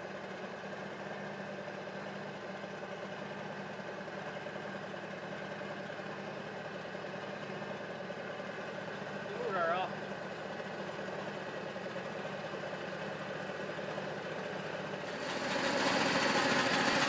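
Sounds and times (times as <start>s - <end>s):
machine engine running: 9.1s - 17.0s.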